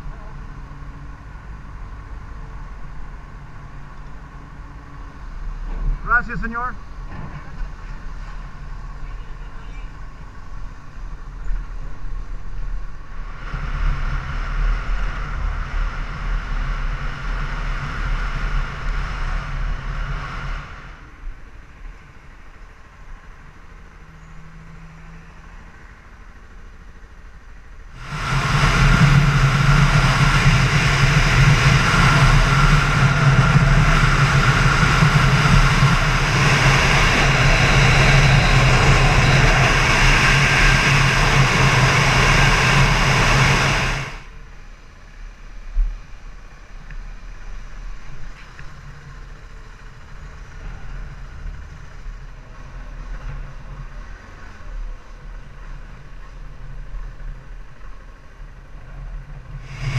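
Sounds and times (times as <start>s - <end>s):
wind rushing over microphone: 10.0s - 22.0s, 27.9s - 44.7s, 58.5s - 59.9s
motorcycle engine running: 27.2s - 44.4s, 47.7s - 59.9s.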